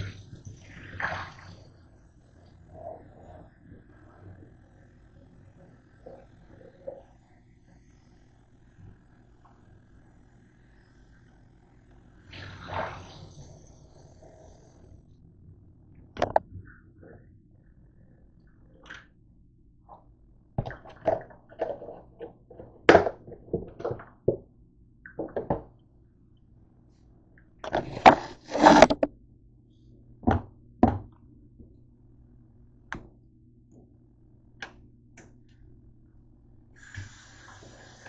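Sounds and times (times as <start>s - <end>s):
kitchen items knocking and clattering: 25.1s - 25.7s.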